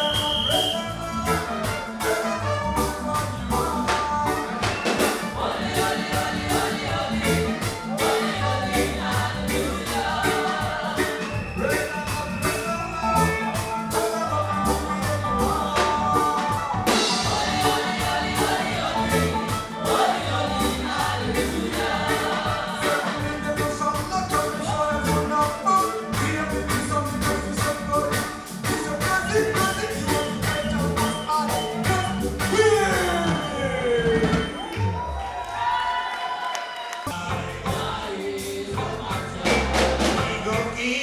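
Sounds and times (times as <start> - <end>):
reggae band music: 0.0 - 35.6, 37.0 - 41.0
man singing into a microphone: 23.2 - 34.2, 38.8 - 41.0.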